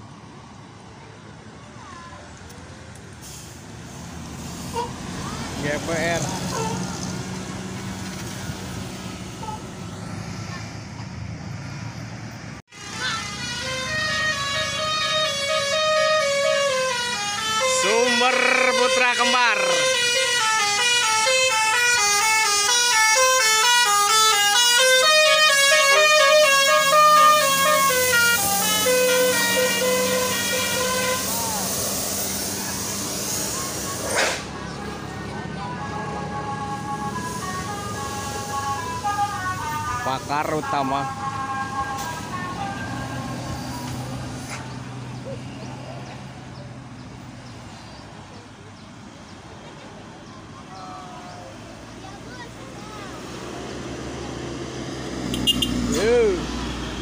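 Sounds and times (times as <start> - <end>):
passing traffic road noise: 0.0 - 57.0
bus multi-tone horn melody: 12.7 - 45.0, 55.1 - 56.8.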